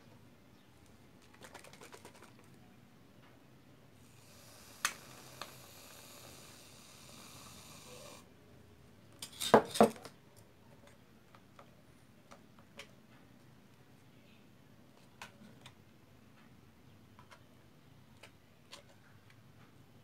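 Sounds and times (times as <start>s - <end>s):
aerosol shaving cream hissing: 4.0s - 8.2s.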